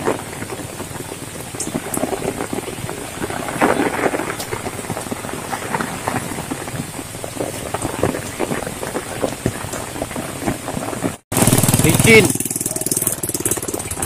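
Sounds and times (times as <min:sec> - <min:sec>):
heavy rain pattering: 0:00.0 - 0:14.0.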